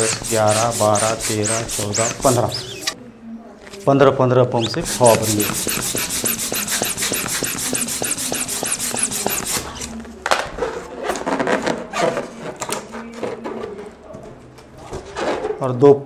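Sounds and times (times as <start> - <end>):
balloon rubbing: 0.0 - 3.0, 4.6 - 10.0
hand pump hissing strokes: 0.0 - 3.0, 4.6 - 9.9.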